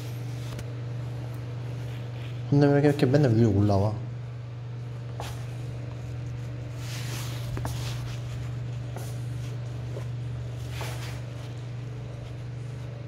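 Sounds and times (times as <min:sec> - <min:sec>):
steady low hum: 0:00.0 - 0:13.0
soft rustling: 0:04.9 - 0:13.0.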